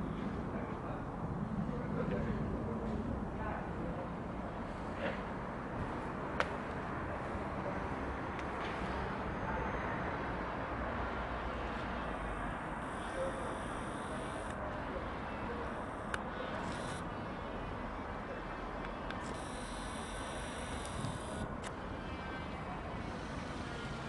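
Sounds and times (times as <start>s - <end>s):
outdoor background rush: 0.0s - 24.0s.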